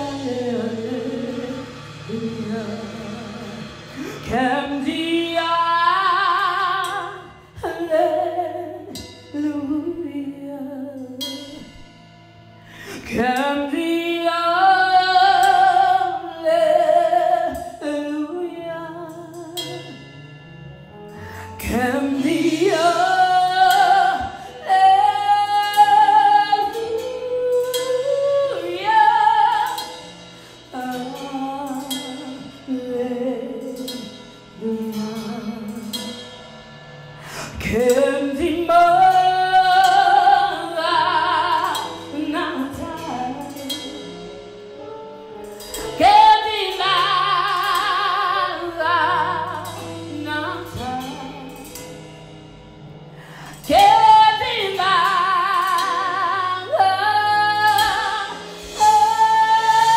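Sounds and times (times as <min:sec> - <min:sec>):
woman singing worship song: 0:00.0 - 0:11.7, 0:21.3 - 0:29.9, 0:37.2 - 0:44.0, 0:45.9 - 0:51.7
soft instrumental accompaniment: 0:00.0 - 0:59.9.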